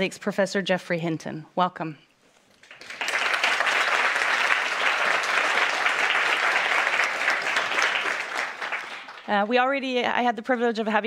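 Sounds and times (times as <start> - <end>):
audience applauding: 2.6 - 9.5.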